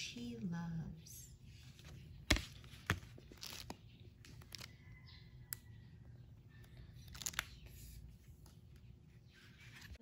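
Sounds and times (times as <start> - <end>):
book pages rustling: 1.5 - 5.0, 6.6 - 10.0.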